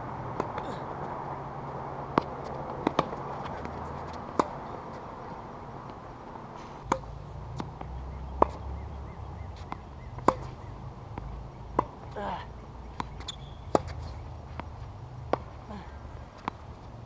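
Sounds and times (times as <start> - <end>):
tennis balls struck by rackets: 0.0 - 17.0
balls bouncing on hard court: 0.3 - 1.1, 2.1 - 5.0, 6.8 - 16.7.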